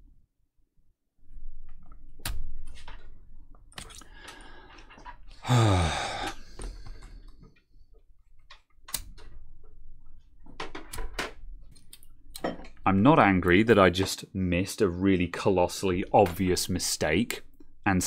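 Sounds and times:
falling vocal groan: 5.4s - 6.6s
fingers clicking plastic connectors: 8.4s - 9.4s.

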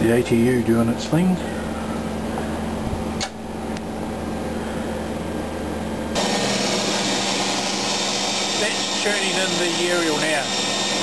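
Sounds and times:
electrical hum with held tone: 0.0s - 11.0s
single click: 3.2s - 3.9s.

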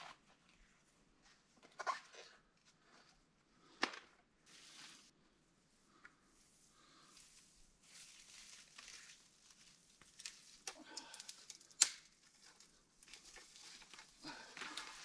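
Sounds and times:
pine boughs rustling: 4.5s - 5.1s, 6.4s - 15.0s
twigs snapping: 8.3s - 15.0s.

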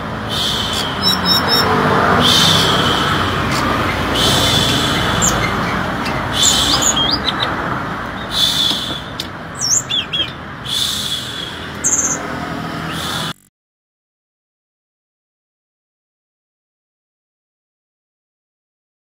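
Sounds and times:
bird singing whistled phrases: 0.3s - 7.5s, 8.2s - 12.2s.

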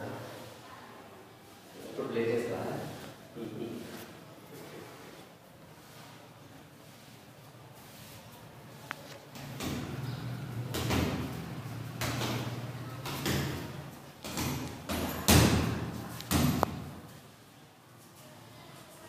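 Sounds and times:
punches thudding on heavy bag: 12.0s - 16.9s.

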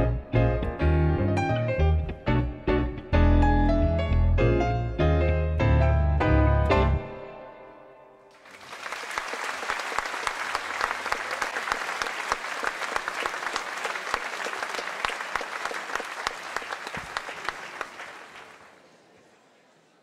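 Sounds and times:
audience applauding: 8.3s - 19.1s.

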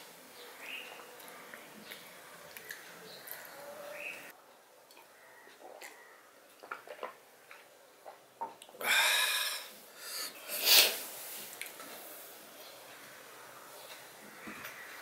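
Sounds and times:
loud breathy exhalations: 8.8s - 11.2s.

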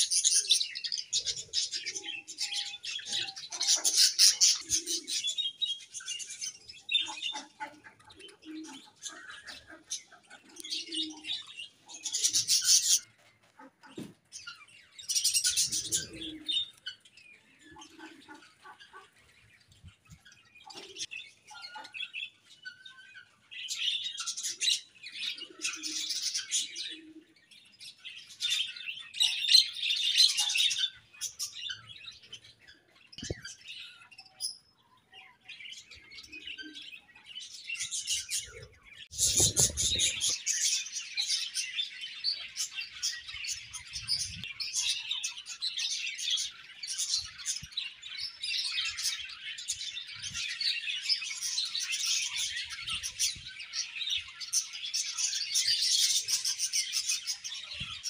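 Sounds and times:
budgerigars chirping: 0.0s - 5.2s.

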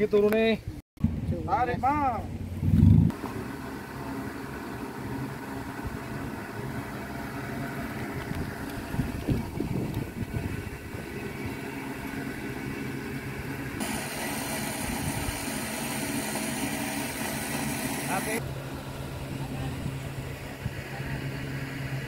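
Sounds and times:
engine idling: 2.4s - 22.0s
hiss: 13.8s - 18.4s.

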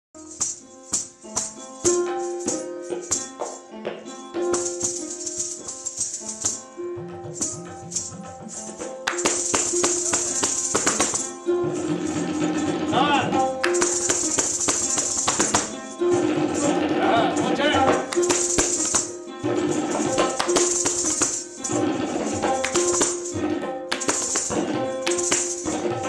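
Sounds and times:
ankle bells jingling: 0.2s - 26.0s
tabla strokes: 0.2s - 26.0s
held melody line: 0.3s - 26.0s.

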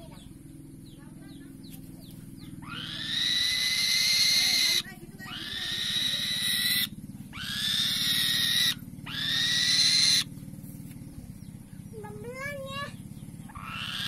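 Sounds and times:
steady low hum: 0.0s - 14.0s
bird of prey calling high: 2.6s - 10.3s, 12.1s - 14.0s.

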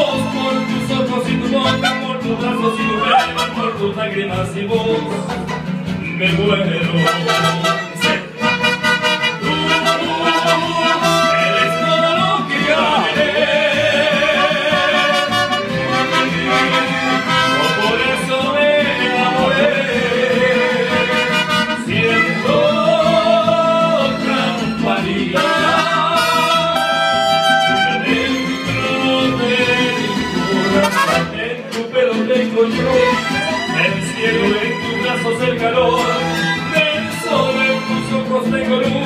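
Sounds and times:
strummed guitars: 0.0s - 39.0s
violins and trumpets melody: 1.5s - 2.4s, 3.0s - 3.9s, 6.8s - 31.9s.

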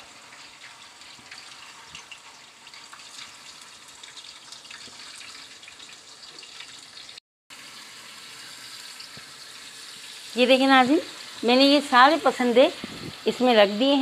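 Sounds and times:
oil sizzling and crackling: 0.0s - 14.0s.

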